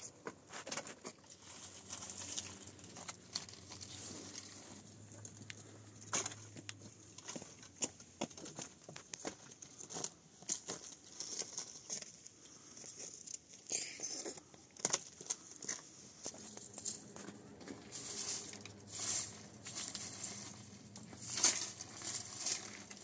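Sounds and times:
firewood sticks cracking and clattering: 0.6 - 12.2, 14.7 - 23.0
footsteps crunching on dry twigs: 14.8 - 23.0.

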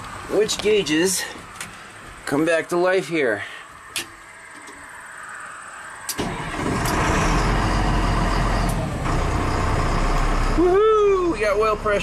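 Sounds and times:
diesel engine starting: 6.1 - 12.0
deep diesel engine idle: 6.3 - 12.0.

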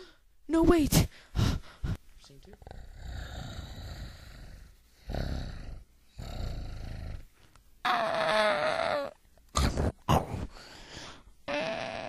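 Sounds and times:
low rumbling dinosaur growls: 2.6 - 7.2.

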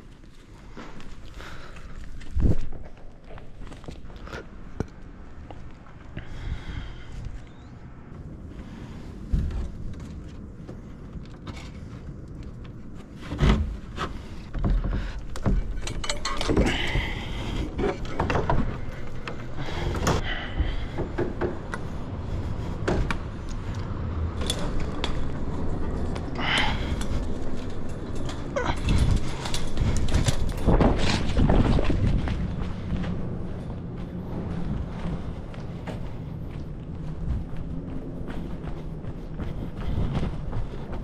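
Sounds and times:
low rumble: 2.0 - 41.0
knocks and rattles on fence: 9.4 - 21.9.

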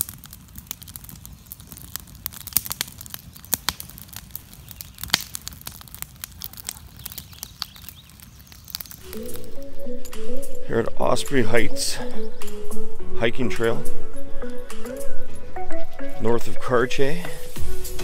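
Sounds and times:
sharp fire pops: 0.0 - 9.6
campfire crackling: 0.0 - 18.0.

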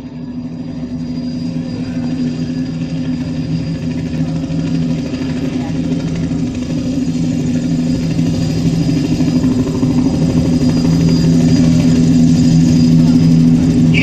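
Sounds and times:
hall noise: 9.0 - 14.0
low drone of two held notes: 13.7 - 14.0.

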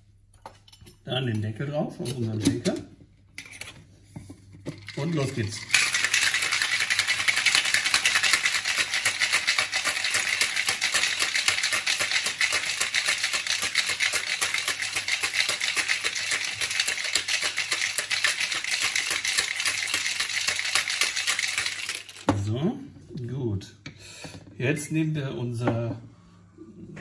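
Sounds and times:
ice rattling in cocktail shaker: 4.7 - 22.3.

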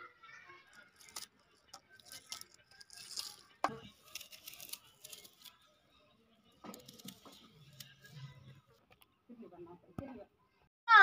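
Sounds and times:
onion skin crackling and tearing: 0.7 - 5.6, 6.7 - 8.0.

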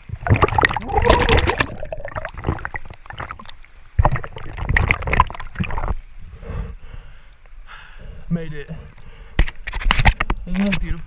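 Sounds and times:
river water splashing and gurgling: 0.0 - 6.4.

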